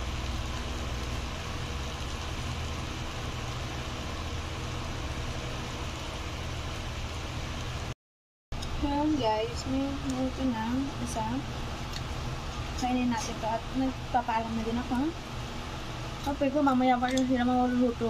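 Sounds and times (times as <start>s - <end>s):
food deep-frying in hot oil: 0.0s - 8.0s, 8.6s - 18.0s.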